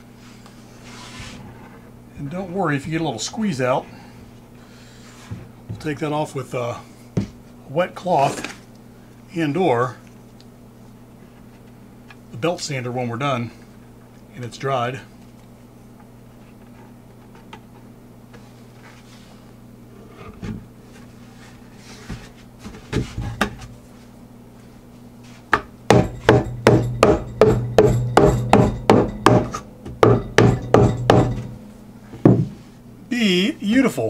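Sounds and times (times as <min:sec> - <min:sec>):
wooden boxes knocking and scraping: 0:25.5 - 0:31.6.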